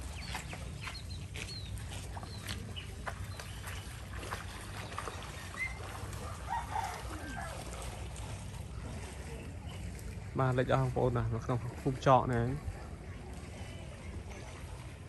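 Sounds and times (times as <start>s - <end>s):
small birds chirping: 0.0s - 5.8s.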